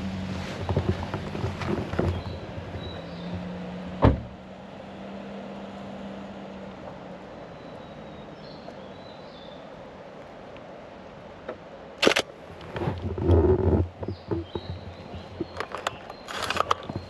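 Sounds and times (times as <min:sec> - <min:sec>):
heavy thump: 0:04.0 - 0:04.4.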